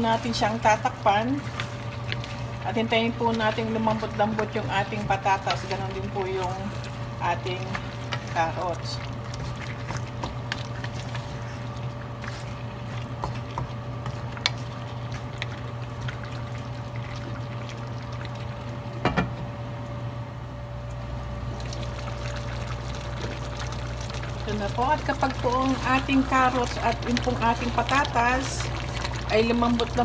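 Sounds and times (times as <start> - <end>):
wooden spatula stirring stew: 0.0 - 17.4
stew bubbling: 0.0 - 19.0, 20.9 - 30.0.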